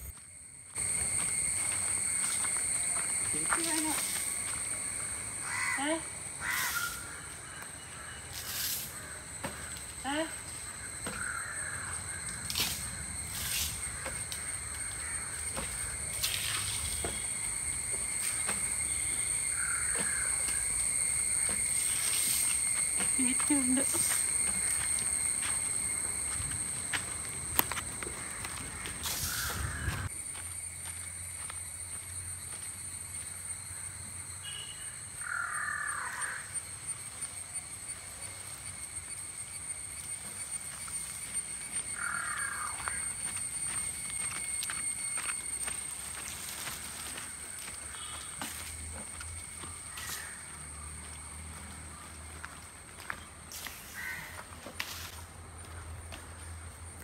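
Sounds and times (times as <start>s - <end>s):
high-pitched insect drone: 0.0s - 57.0s
crows cawing: 5.4s - 8.2s, 10.7s - 12.6s, 13.9s - 16.1s, 18.9s - 20.7s, 28.0s - 30.1s, 35.2s - 36.5s, 41.9s - 43.4s, 49.6s - 50.8s, 53.9s - 54.5s.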